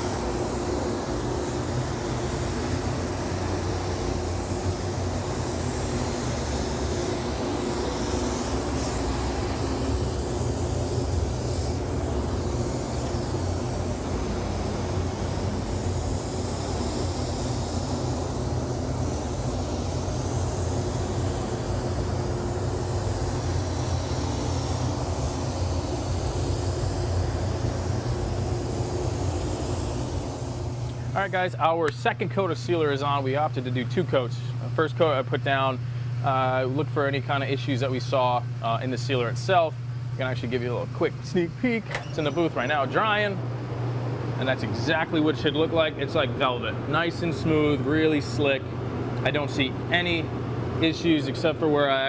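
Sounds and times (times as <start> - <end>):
spray gun hissing: 0.0 - 31.6
ventilation fans droning: 0.0 - 52.0.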